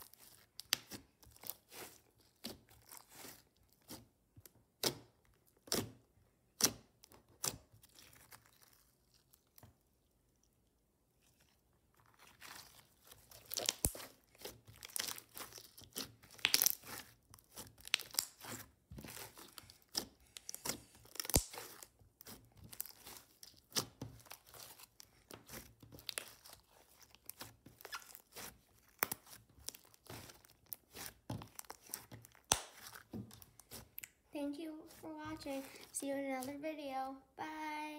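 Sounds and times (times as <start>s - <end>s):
slime popping and crackling: 0.2s - 3.4s, 12.1s - 34.2s.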